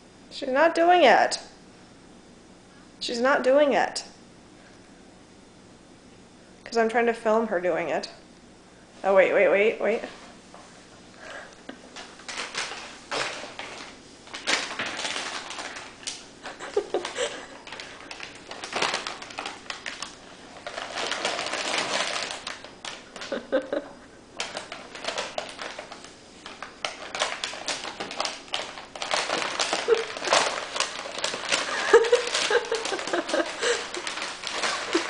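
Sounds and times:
paper bag crinkling: 12.0s - 23.6s, 24.4s - 35.0s.

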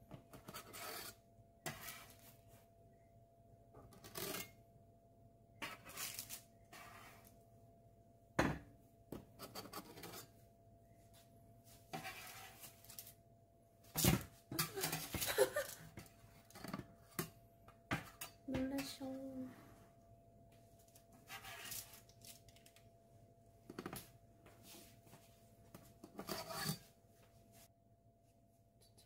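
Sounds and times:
spatula scraping and clattering: 0.2s - 2.3s, 3.9s - 4.6s, 5.6s - 7.3s, 9.4s - 10.4s, 11.9s - 13.1s, 26.0s - 26.9s.

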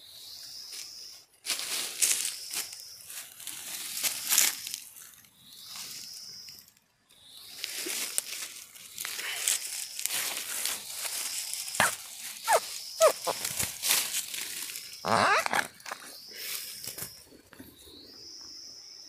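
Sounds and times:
dry leaves crunching underfoot: 1.4s - 6.2s, 7.5s - 17.3s.

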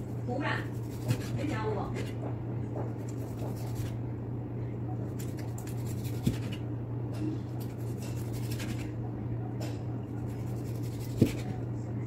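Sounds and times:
steady low hum: 0.0s - 12.0s
cleaver cutting meat: 0.6s - 4.0s, 5.1s - 6.7s, 7.5s - 9.0s, 10.1s - 11.6s.

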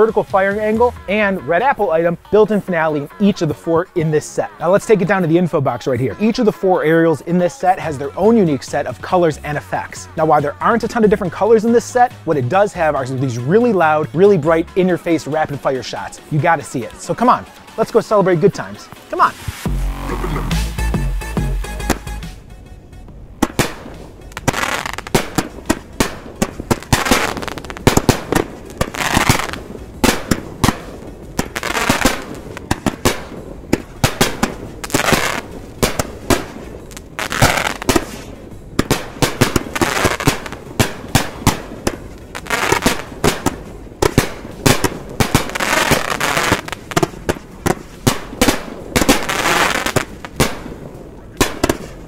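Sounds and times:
firework launches and bursts: 19.0s - 20.2s, 23.4s - 52.0s.

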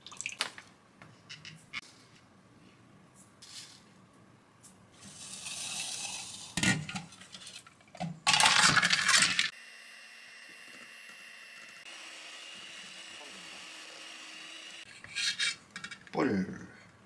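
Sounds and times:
ice cubes rattling against steel: 8.2s - 9.5s.

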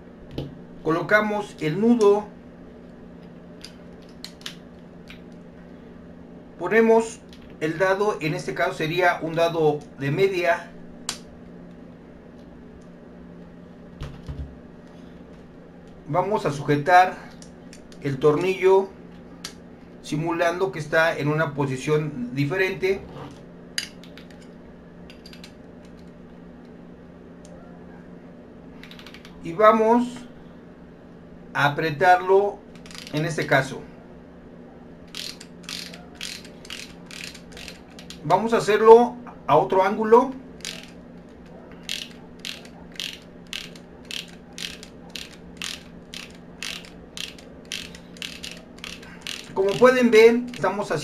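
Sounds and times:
faint steady hum: 0.0s - 51.0s
metallic clicks of hand tools: 35.1s - 38.2s, 40.6s - 40.9s, 41.8s - 50.7s.

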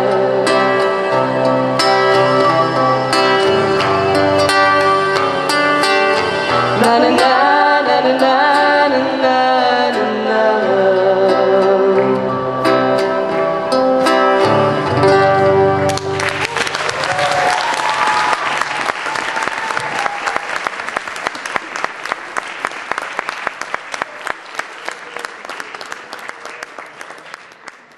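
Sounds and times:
acoustic guitar chords: 0.0s - 16.6s
audience applause: 16.0s - 27.9s.

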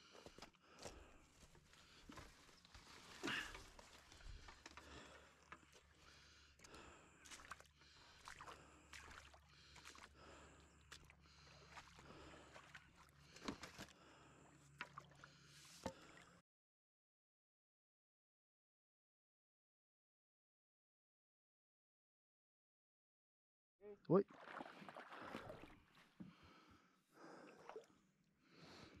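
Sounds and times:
water sloshing: 2.8s - 14.0s, 24.3s - 26.3s.

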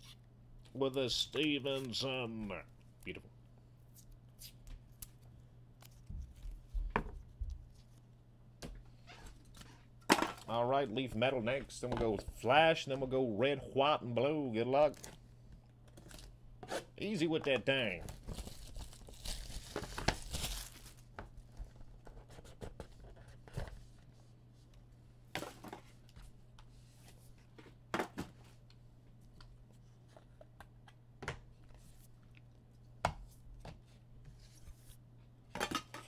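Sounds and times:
wrapper tearing with rustle: 18.1s - 21.1s.

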